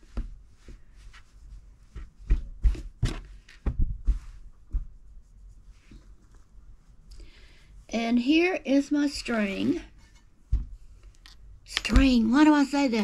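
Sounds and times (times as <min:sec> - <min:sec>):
light rustling of yarn: 0:00.0 - 0:08.0
soft knocks and thumps: 0:01.8 - 0:05.0, 0:10.1 - 0:10.9.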